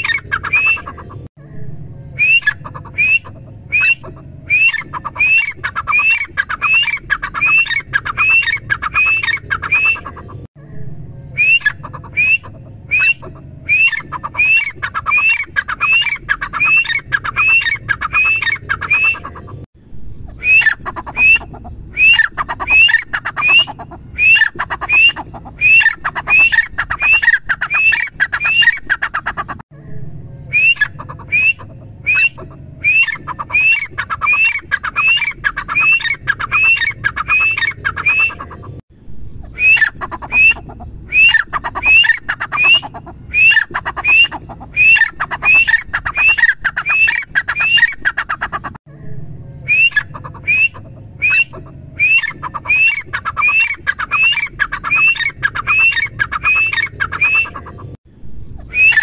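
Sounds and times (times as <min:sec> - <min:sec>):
francolin calling: 0:02.2 - 0:10.2.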